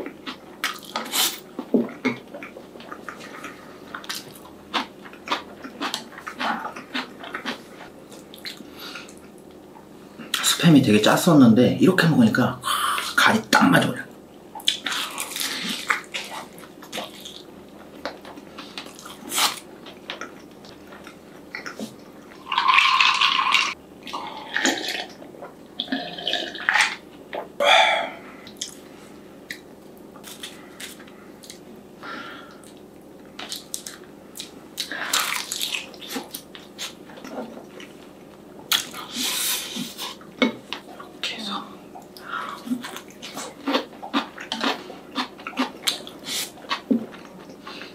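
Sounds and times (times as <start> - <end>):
person chewing: 0.0 - 9.6, 14.6 - 28.8, 29.5 - 31.6, 32.4 - 41.1, 42.0 - 47.9
pouring liquid: 22.4 - 23.8.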